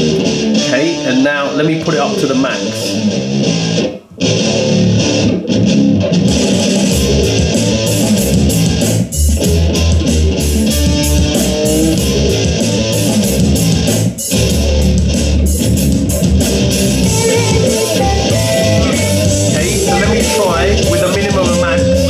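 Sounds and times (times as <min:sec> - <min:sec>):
deep bass line: 0:00.0 - 0:01.2, 0:01.9 - 0:22.0
loud music from speaker: 0:00.0 - 0:22.0.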